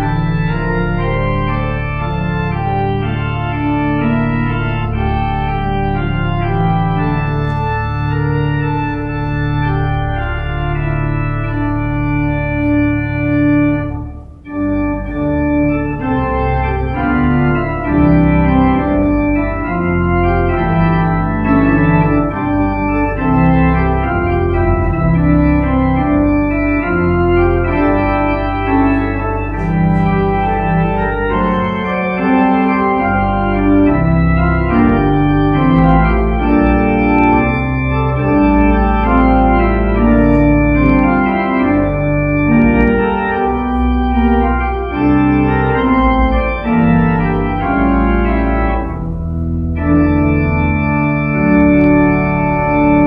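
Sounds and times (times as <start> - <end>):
church organ chords: 0.0 - 53.0.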